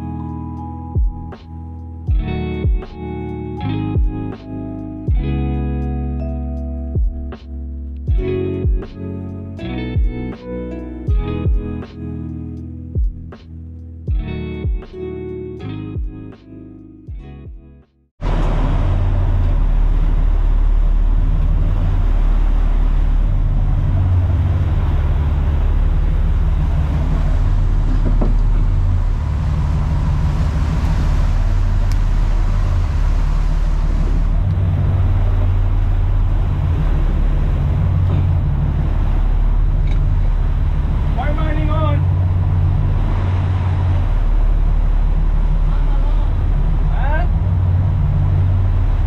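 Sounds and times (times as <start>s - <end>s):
boat engine drone: 18.2s - 49.0s
churning water rushing: 18.2s - 49.0s.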